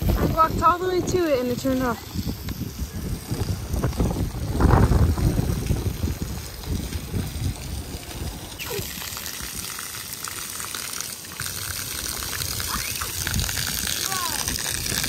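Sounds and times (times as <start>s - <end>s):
water jets splattering on concrete: 0.0s - 15.0s.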